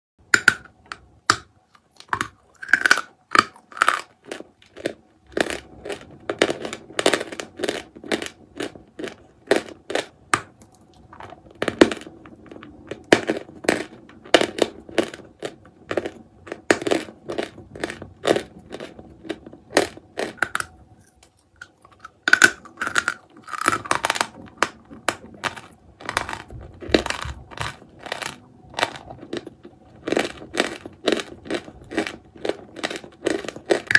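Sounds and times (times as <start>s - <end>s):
chalk being chewed crunching: 1.7s - 10.1s, 12.9s - 33.9s.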